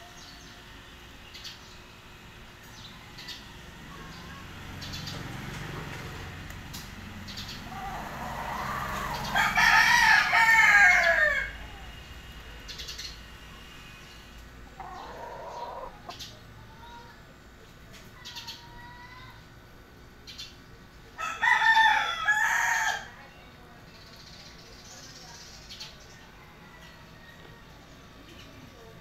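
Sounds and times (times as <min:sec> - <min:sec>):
rooster crowing: 0:07.6 - 0:12.0, 0:14.8 - 0:16.1, 0:21.2 - 0:23.2, 0:26.4 - 0:27.7.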